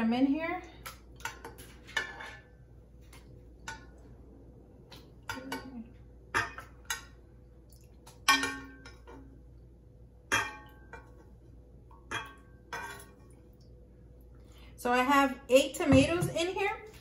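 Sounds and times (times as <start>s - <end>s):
metal spoon clinking on glass and pot: 8.3s - 9.2s, 10.3s - 11.1s, 12.1s - 13.2s.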